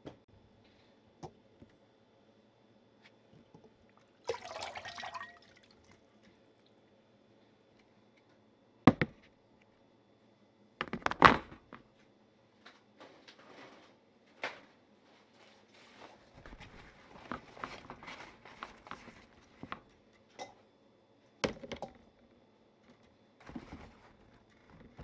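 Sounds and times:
water splashing in colander: 4.0 - 6.0.

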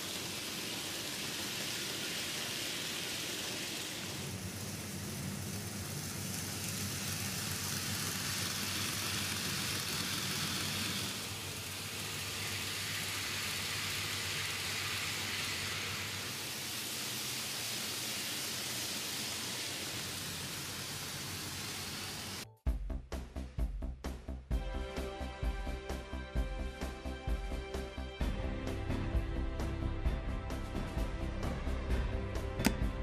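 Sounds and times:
model train wheels and motors hissing: 0.0 - 22.4.

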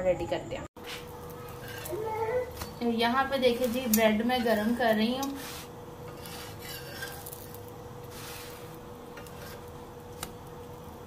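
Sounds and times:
steady hum: 0.0 - 11.0
metal spatula scraping griddle: 0.8 - 2.7, 3.3 - 10.0.

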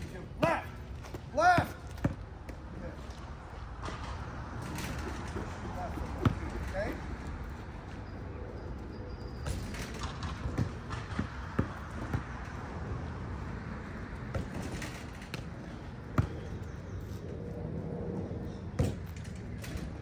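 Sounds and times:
steady background noise: 0.0 - 20.0
basketball bouncing on a court: 0.4 - 2.7, 9.4 - 12.6, 16.0 - 16.5.

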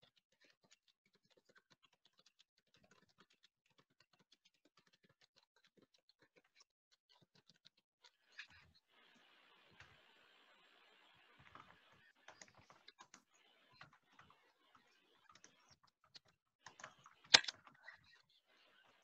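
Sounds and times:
keyboard typing: 11.5 - 17.8.

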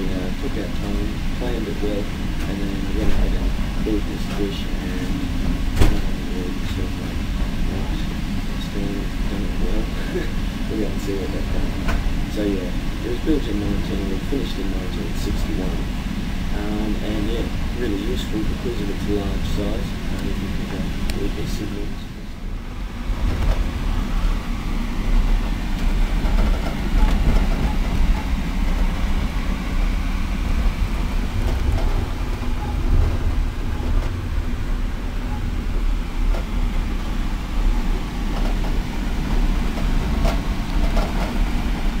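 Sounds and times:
train wheels rumbling on track: 0.0 - 42.0
faint clicks and rattles: 31.3 - 34.3, 37.8 - 42.0.

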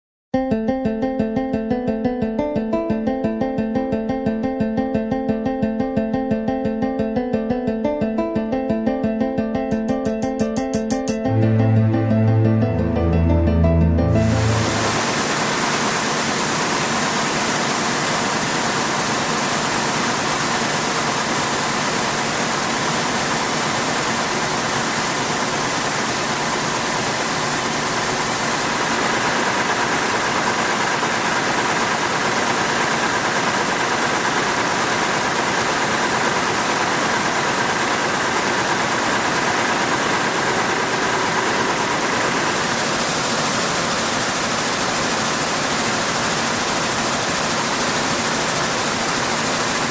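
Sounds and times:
weaving looms running: 14.2 - 49.9.

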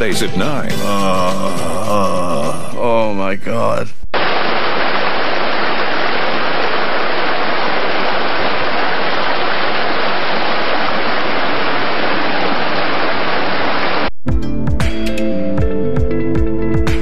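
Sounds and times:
stream water rushing over rocks: 4.2 - 14.1.

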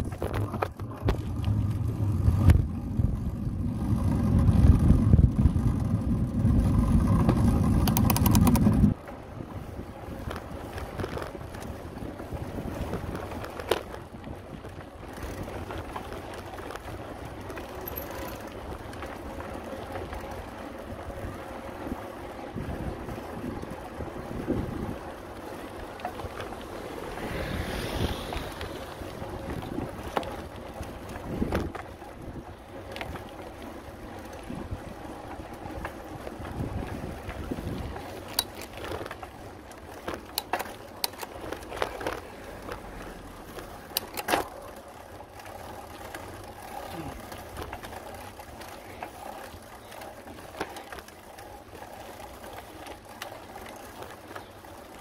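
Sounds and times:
wind buffeting microphone: 0.0 - 17.7, 18.5 - 40.5
bike clicks and knocks: 0.0 - 55.0
road rumble: 0.0 - 55.0.

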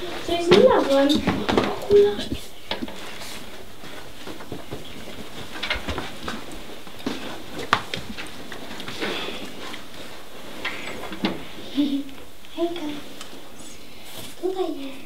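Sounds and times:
faint rustling: 0.0 - 15.0.

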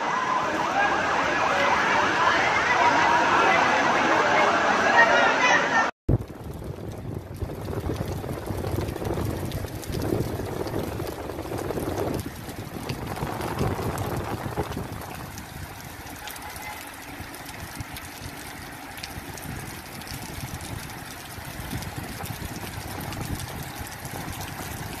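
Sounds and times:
heavy rain hissing: 0.0 - 25.0
low uneven rumble: 6.1 - 25.0
raindrops ticking close by: 6.1 - 25.0.

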